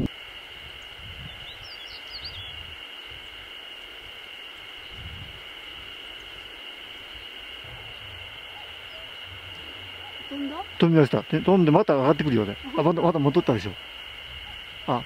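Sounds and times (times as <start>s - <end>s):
bird singing scratchy notes: 0.8s - 3.4s, 6.0s - 15.0s
high-pitched drone: 4.8s - 15.0s.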